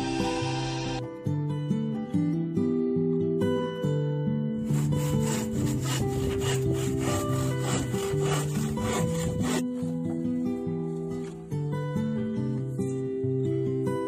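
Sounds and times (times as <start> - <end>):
background guitar music: 0.0 - 14.0
hand saw cutting plywood: 4.6 - 9.9.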